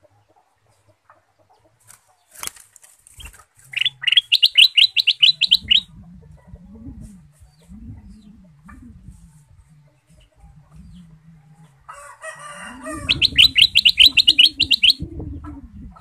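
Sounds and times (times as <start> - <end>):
bird singing fast trill: 3.2 - 5.9, 12.9 - 15.0.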